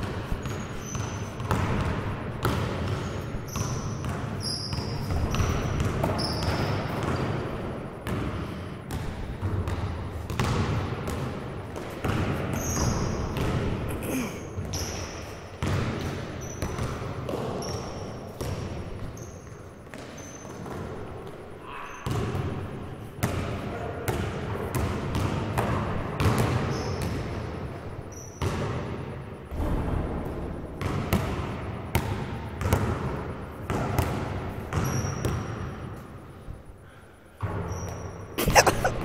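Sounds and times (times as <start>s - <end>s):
basketballs bouncing on gym floor: 0.0s - 21.4s, 22.0s - 36.0s
shoe squeaks: 0.3s - 1.6s, 2.9s - 7.1s, 12.5s - 13.4s, 14.4s - 15.5s, 16.4s - 16.9s, 17.5s - 18.3s, 19.0s - 20.7s, 21.7s - 22.2s, 26.6s - 27.1s, 28.0s - 28.5s, 34.8s - 35.8s, 37.7s - 39.0s.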